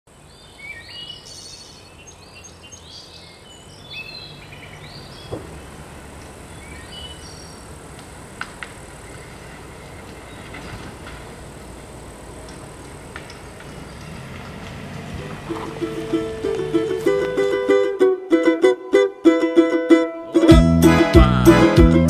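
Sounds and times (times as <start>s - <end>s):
birds chirping: 0.1s - 17.5s
van engine running low: 0.1s - 18.2s.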